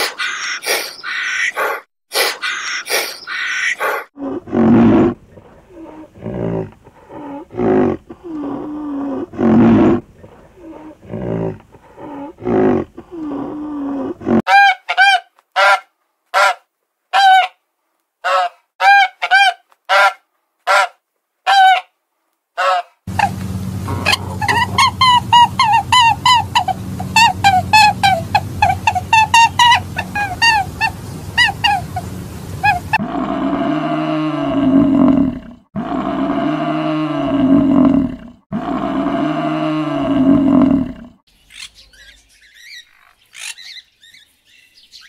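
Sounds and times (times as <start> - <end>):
swans honking: 22.6 - 33.0
rhinoceroses grunting: 23.1 - 28.2.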